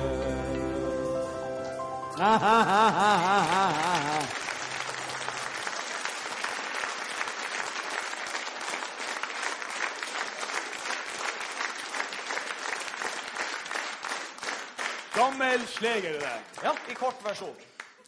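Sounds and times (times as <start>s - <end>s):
audience applauding: 2.2s - 18.0s.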